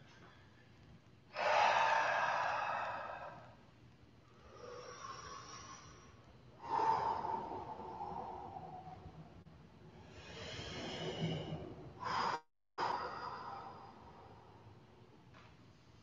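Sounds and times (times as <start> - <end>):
heavy breathing: 1.3 - 3.6, 4.3 - 14.7.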